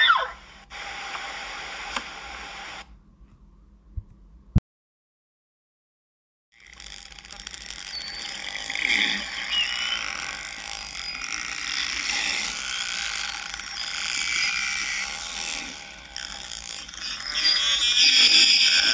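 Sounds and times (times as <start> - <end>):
animal chattering with whistles: 0.0 - 0.4, 7.8 - 12.4.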